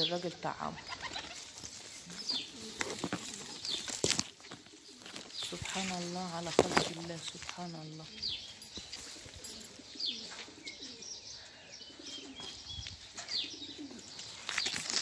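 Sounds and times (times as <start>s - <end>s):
low bird calls: 0.0s - 15.0s
high falling bird chirps: 7.7s - 15.0s.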